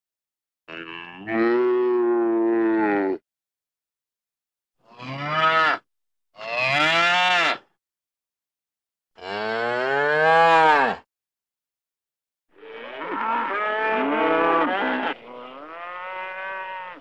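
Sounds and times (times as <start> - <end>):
cow mooing: 0.7 - 3.2, 5.0 - 5.8, 9.2 - 11.0, 12.6 - 17.0.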